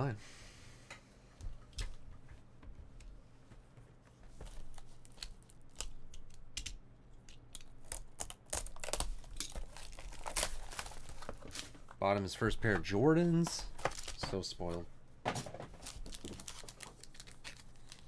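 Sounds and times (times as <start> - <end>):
plastic wrapping crinkling and tearing: 4.4 - 6.4, 7.5 - 12.0, 13.4 - 14.8, 15.8 - 18.0.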